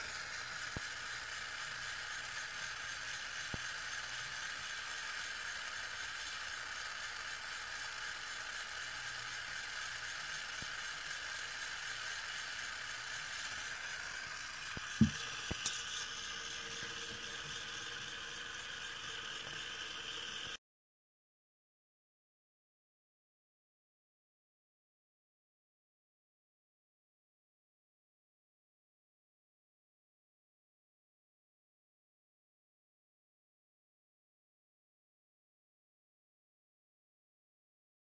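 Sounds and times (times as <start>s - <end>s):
small electric motor whirring: 0.0s - 20.6s.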